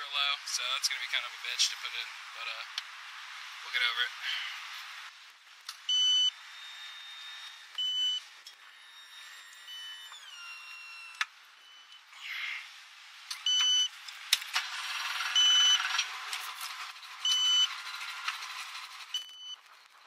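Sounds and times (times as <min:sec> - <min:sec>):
high electronic beep: 0:05.9 - 0:08.2, 0:08.8 - 0:12.0, 0:13.5 - 0:13.9, 0:15.3 - 0:15.9, 0:17.2 - 0:17.8, 0:19.1 - 0:19.6.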